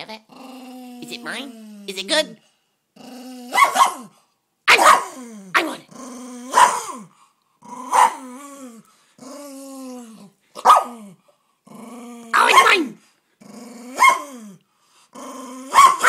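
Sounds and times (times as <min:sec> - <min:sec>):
dog growling: 0:00.0 - 0:04.2, 0:05.0 - 0:16.0
dog barking: 0:03.5 - 0:04.1, 0:04.7 - 0:05.7, 0:06.5 - 0:06.9, 0:07.9 - 0:08.2, 0:10.6 - 0:11.0, 0:12.4 - 0:12.9, 0:14.0 - 0:14.3, 0:15.7 - 0:16.0.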